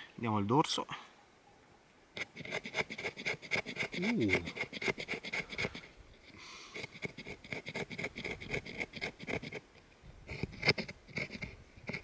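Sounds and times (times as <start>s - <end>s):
knife scraping wood: 2.2s - 9.7s, 10.3s - 12.0s.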